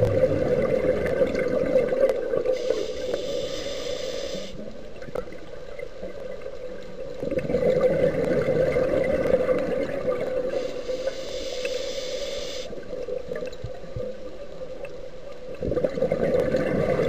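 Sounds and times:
bubbling gurgle: 0.0s - 2.6s, 5.0s - 10.6s, 15.5s - 17.0s
muffled underwater noise: 0.0s - 6.1s.

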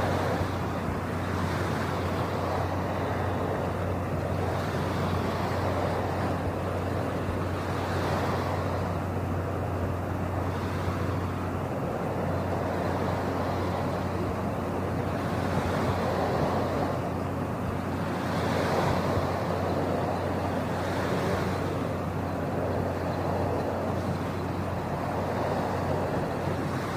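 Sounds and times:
constant low hum: 0.0s - 26.9s
steady rushing noise: 0.0s - 26.9s.

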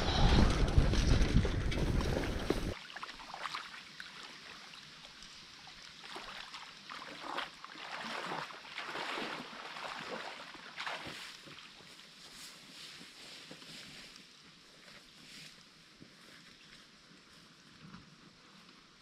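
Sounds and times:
footsteps wading through water: 1.4s - 13.1s.

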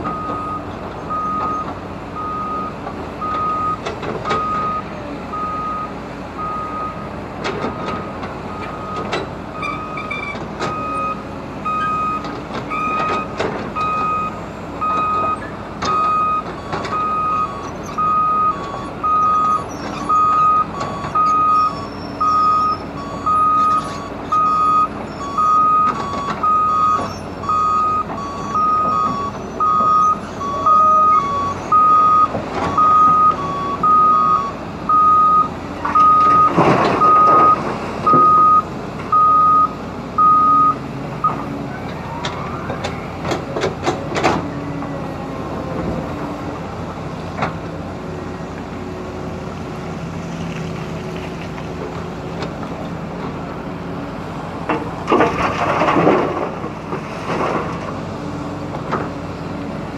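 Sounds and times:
heavy diesel machinery running: 0.0s - 59.9s
reversing alarm beeping: 0.1s - 7.0s, 7.7s - 41.4s.

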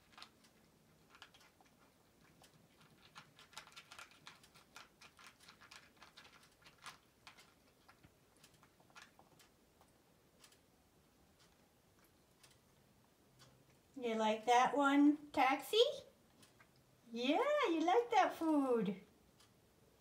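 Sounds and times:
cat crunching kibble: 0.0s - 13.9s, 16.2s - 17.1s.

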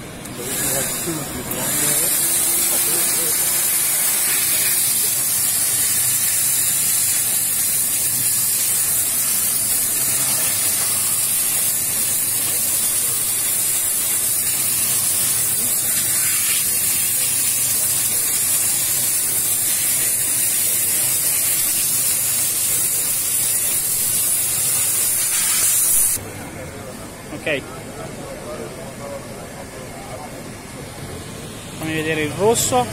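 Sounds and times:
steam jet hissing: 0.3s - 26.2s.

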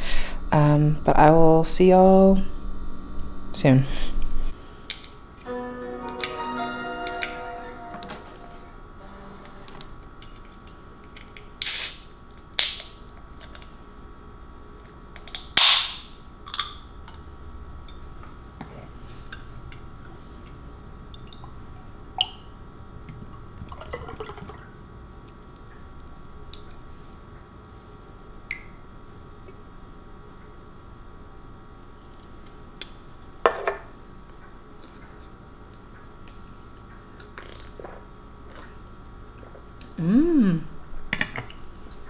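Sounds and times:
can hissing open: 11.6s - 12.1s
liquid pouring into glass: 23.7s - 24.7s.

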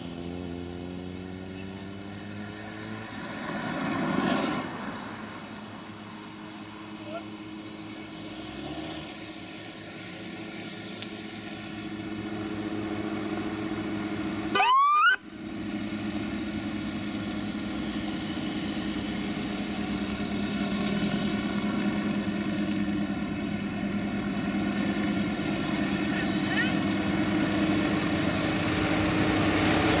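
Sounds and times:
tractor diesel engine running: 9.1s - 30.0s
police siren whoop: 14.5s - 15.2s.

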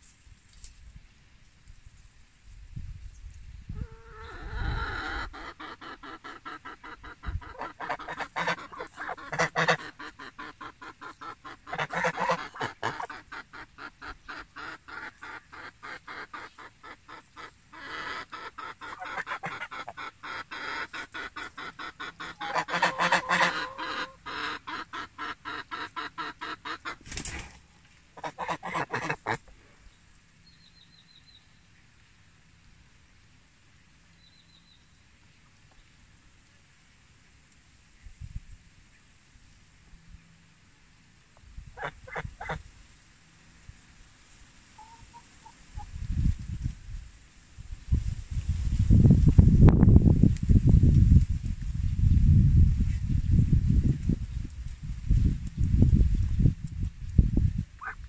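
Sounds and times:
geese honking: 4.0s - 27.0s, 28.2s - 29.5s.

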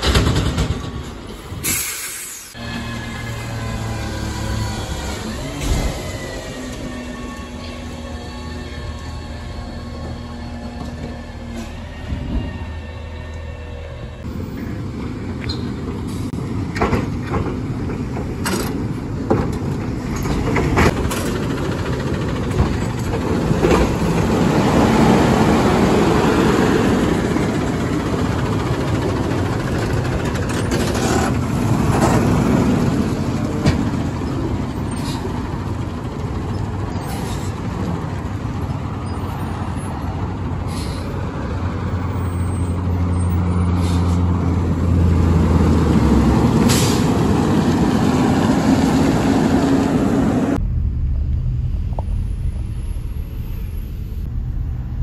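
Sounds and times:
hydraulics whirring: 0.0s - 14.3s
garbage truck engine: 0.0s - 51.5s.

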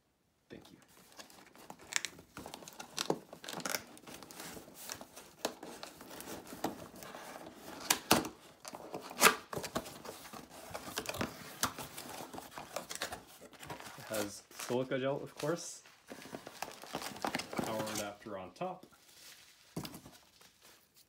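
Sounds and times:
cardboard and packaging rustling: 0.9s - 21.0s
packing tape cut and torn: 1.2s - 6.7s, 7.7s - 10.1s.

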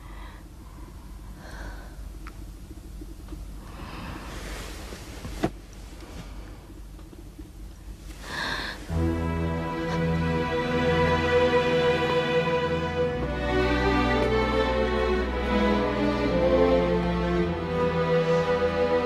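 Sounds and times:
low hum: 0.0s - 19.0s
soft rustles: 3.9s - 7.2s
slow background music: 8.8s - 19.0s.

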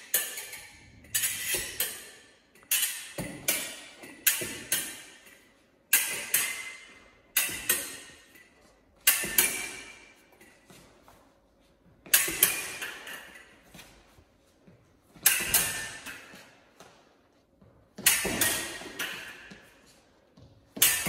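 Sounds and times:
steel blades clashing: 7.4s - 10.1s.

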